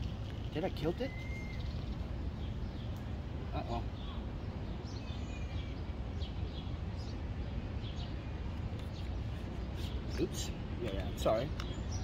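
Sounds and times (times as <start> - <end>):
low rumble and hiss: 0.0 - 12.0
bird chirps: 0.7 - 3.0, 3.6 - 7.2.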